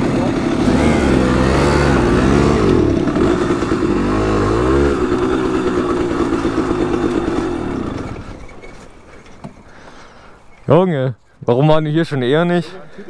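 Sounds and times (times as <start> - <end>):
moped engine revving: 0.0 - 8.9.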